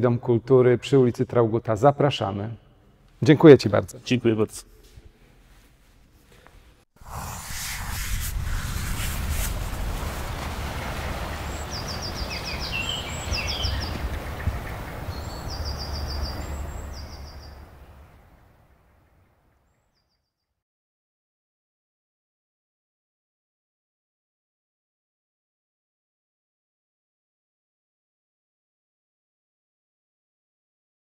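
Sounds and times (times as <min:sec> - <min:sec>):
steady rumbling background: 0:07.0 - 0:18.3
bird singing trilled phrases: 0:11.7 - 0:14.4.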